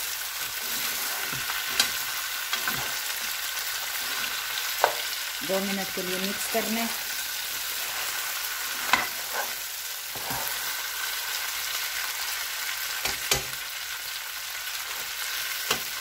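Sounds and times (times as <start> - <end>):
meat sizzling in a pan: 0.0 - 16.0
spatula stirring: 0.4 - 5.3, 6.4 - 10.8.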